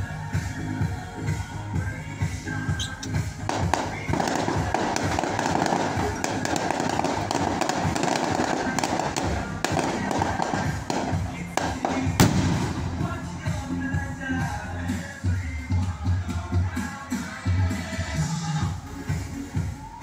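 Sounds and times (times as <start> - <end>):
loud music: 0.0 - 20.0
fireworks popping and cracking: 2.9 - 13.7
firework shell bang: 3.5 - 13.0.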